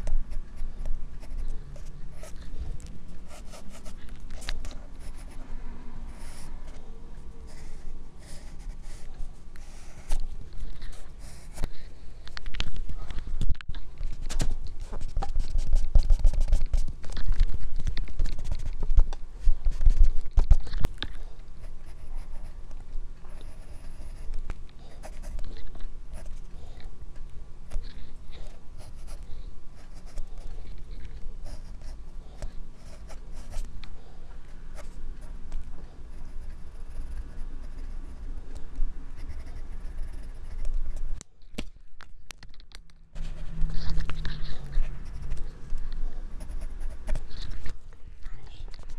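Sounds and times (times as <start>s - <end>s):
pencil scratching on paper: 0.0s - 5.4s, 6.1s - 11.9s, 14.8s - 20.7s, 21.6s - 22.6s, 23.3s - 26.8s, 27.7s - 33.7s, 36.1s - 38.3s, 39.2s - 41.1s, 43.2s - 47.8s.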